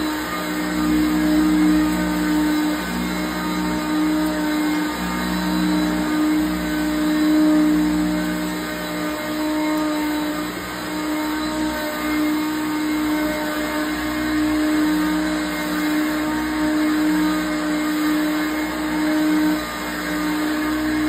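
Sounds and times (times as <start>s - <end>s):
vacuum cleaner on carpet: 0.0s - 21.0s.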